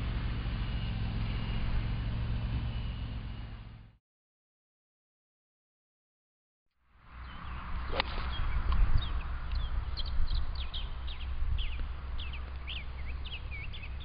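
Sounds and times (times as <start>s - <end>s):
songbirds chirping: 7.0s - 14.0s
wind rumble on microphone: 7.1s - 14.0s
golf club swish: 7.8s - 8.8s.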